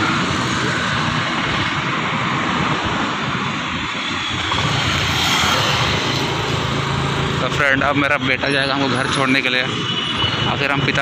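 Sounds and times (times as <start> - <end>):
wind buffeting microphone: 0.0 - 8.3.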